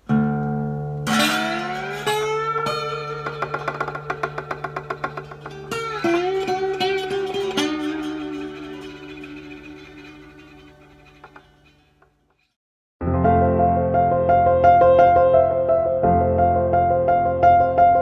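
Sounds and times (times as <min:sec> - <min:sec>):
acoustic guitar playing: 0:00.0 - 0:12.4.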